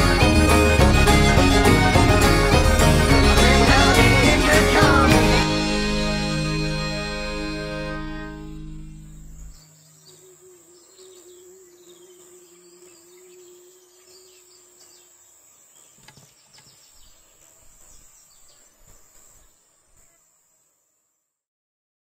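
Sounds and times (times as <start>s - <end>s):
music: 0.0s - 9.6s
high insect drone: 0.0s - 21.3s
bird chirps: 7.9s - 20.1s.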